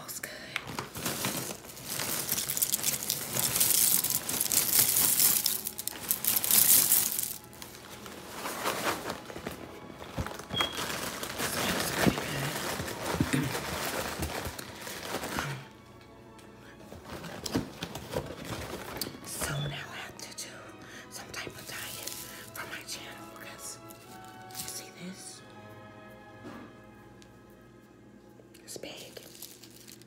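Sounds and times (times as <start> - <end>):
plastic bag crinkling: 0.6 - 15.6, 21.5 - 24.9, 28.9 - 30.0.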